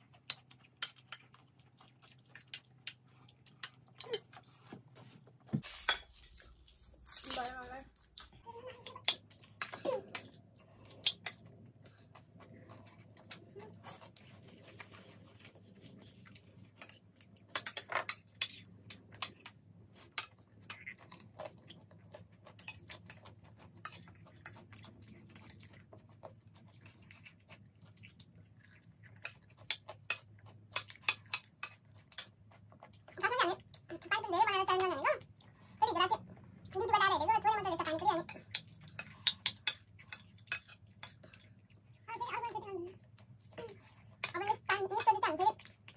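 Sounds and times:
crunchy chewing: 0.0s - 8.8s, 18.7s - 34.0s
spoons clinking on ceramic plates: 5.6s - 6.4s, 38.3s - 41.2s.

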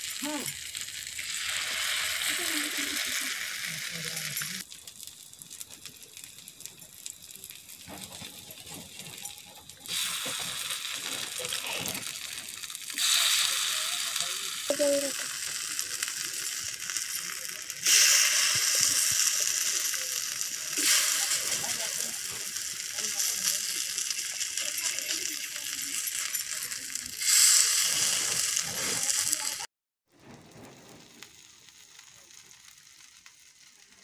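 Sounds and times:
fritters sizzling in a pan: 0.0s - 29.7s, 30.3s - 34.0s.

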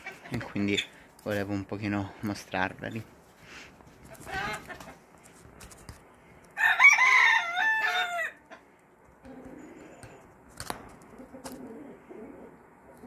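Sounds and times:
chickens clucking: 0.0s - 1.2s, 3.5s - 5.1s, 8.4s - 10.4s, 11.0s - 13.0s
rooster crowing: 6.6s - 8.6s.

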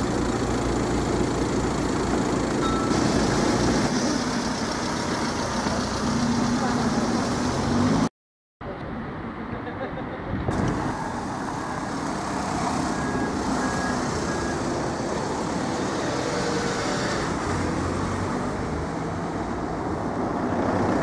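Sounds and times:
vehicle engines idling: 0.0s - 8.1s
street traffic: 0.0s - 21.0s.

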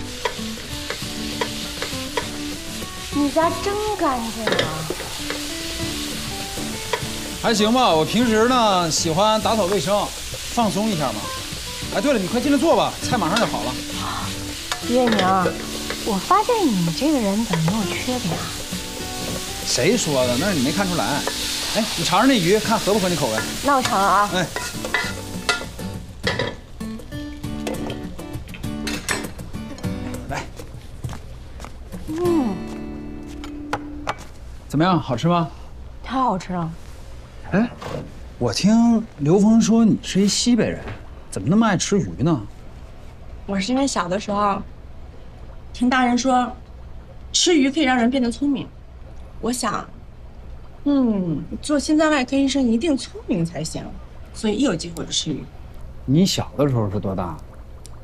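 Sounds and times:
spatula scraping wok: 0.0s - 7.4s, 9.4s - 25.8s
vegetables sizzling in oil: 0.0s - 30.3s.

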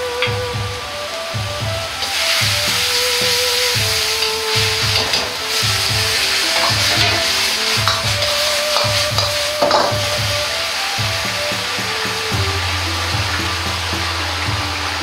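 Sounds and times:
sauce sizzling and bubbling: 2.0s - 15.0s
background music with bass beat: 2.4s - 15.0s
metal ladle scraping pan: 3.6s - 10.1s.

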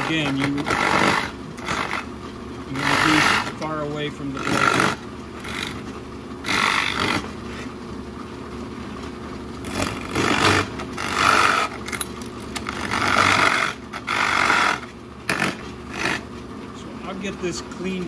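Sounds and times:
drill bit cutting wood: 0.0s - 2.1s, 2.7s - 3.7s, 4.4s - 5.8s, 6.4s - 7.3s, 12.7s - 16.2s
drill press motor humming: 0.0s - 18.0s.

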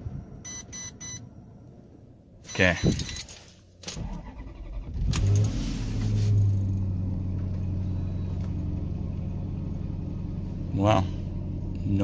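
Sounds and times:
car engine starting and idling: 3.7s - 12.0s.

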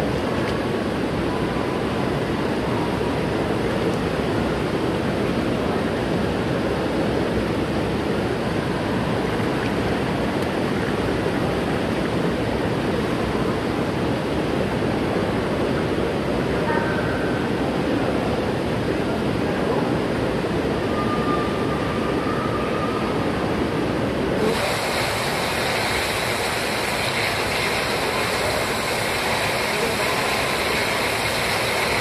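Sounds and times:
rushing water: 0.0s - 16.7s, 21.7s - 32.0s.

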